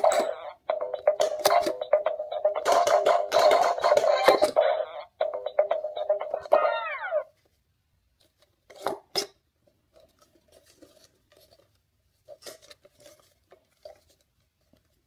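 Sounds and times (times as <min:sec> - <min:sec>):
toy electronic tune: 0:00.2 - 0:07.3.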